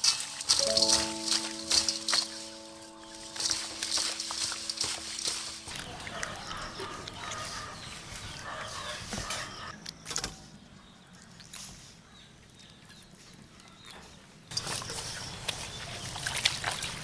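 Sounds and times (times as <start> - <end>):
wet squelching and slapping: 0.0 - 8.4, 14.5 - 17.0.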